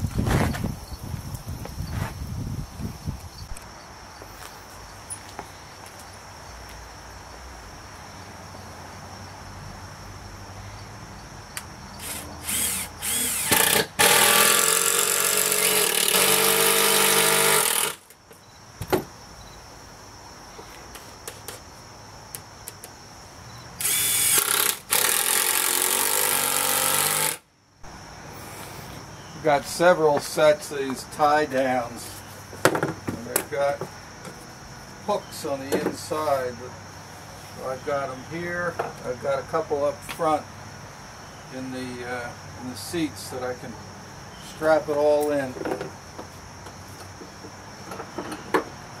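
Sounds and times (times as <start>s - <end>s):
cordless drill driving screws: 12.0s - 18.0s, 23.8s - 27.4s.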